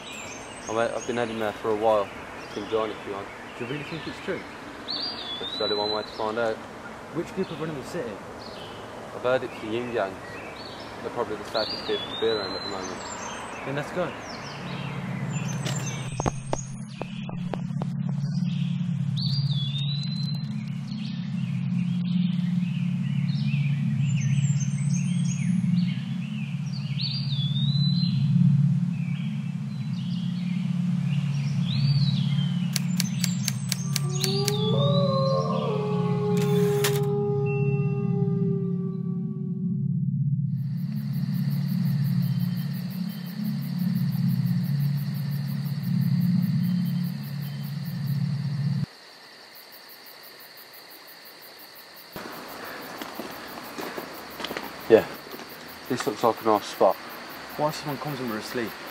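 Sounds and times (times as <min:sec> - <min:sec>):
songbirds chirping and whistling: 0:00.0 - 0:39.0, 0:40.6 - 0:48.9
gliding whistled birdsong phrase: 0:00.0 - 0:39.4, 0:40.5 - 0:48.9
steady low hum: 0:06.3 - 0:48.9
rhythmic high chirping: 0:40.6 - 0:48.9.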